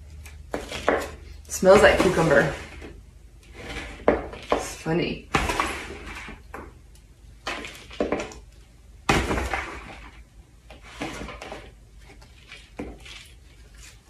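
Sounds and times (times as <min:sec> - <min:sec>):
plastic scoop scraping soil: 0:00.6 - 0:04.9, 0:05.6 - 0:06.5.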